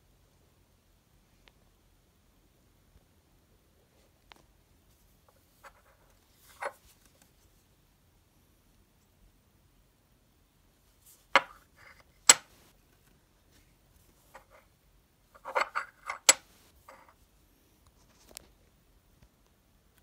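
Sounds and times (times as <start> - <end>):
coin clicking on tabletop: 11.4 - 11.6, 12.3 - 12.5, 15.4 - 17.1
soft coin taps: 11.4 - 12.6, 15.4 - 17.1.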